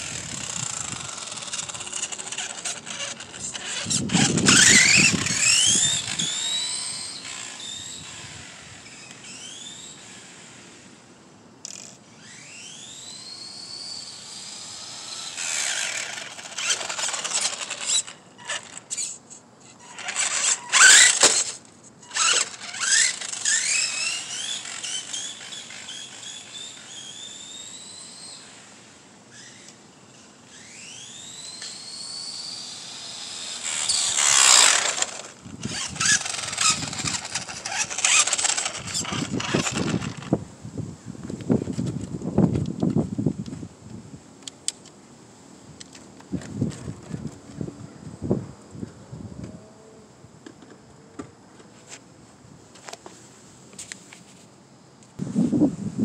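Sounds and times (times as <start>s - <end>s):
rc car motors whining: 0.0s - 40.5s.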